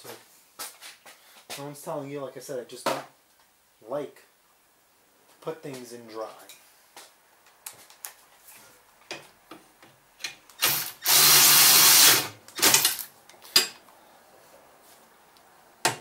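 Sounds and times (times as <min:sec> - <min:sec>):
power drill driving a bolt: 0:10.6 - 0:13.1.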